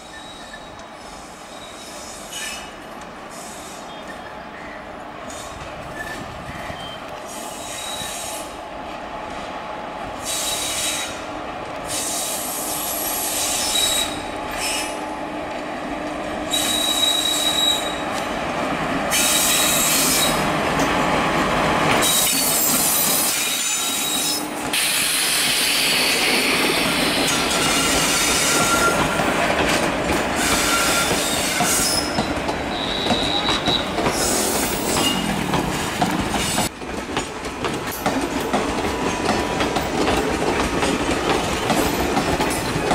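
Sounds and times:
train wheels rumbling on rails: 0.0 - 42.9
high-pitched wheel squeals: 13.4 - 15.0, 16.5 - 18.0, 26.9 - 29.2, 30.4 - 35.3.

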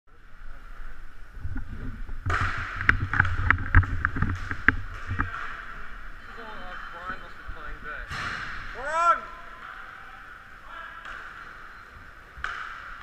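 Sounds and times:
hockey sticks clacking on puck: 2.3 - 5.7.

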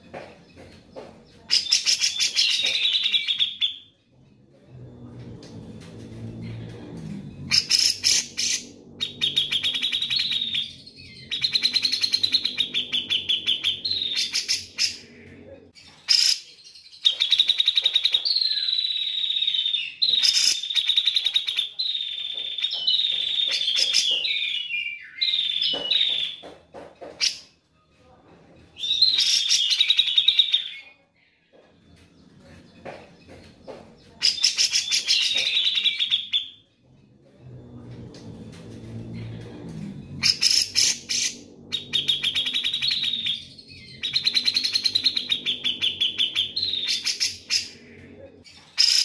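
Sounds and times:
bird singing buzzy trills: 40.1 - 49.0.

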